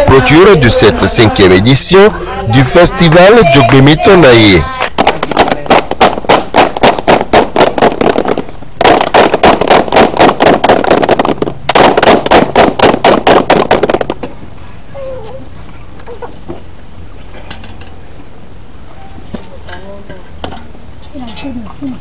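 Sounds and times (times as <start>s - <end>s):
people clapping in rhythm: 3.5s - 8.2s.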